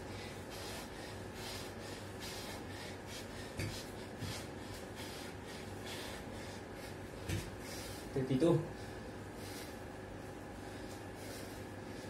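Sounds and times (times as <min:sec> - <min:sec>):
low steady hum: 0:00.0 - 0:12.0
man breathing hard: 0:00.0 - 0:12.0.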